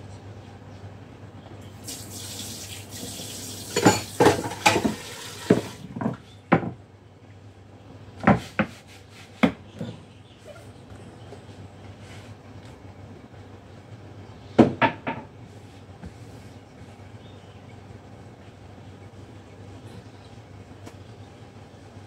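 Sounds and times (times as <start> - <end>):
tap water running into sink: 1.8 - 5.8
kitchenware clattering: 3.7 - 6.2.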